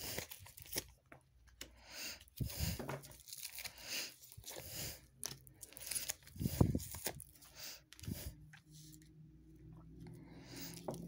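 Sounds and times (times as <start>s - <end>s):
cards shuffling and sliding: 5.2s - 9.1s.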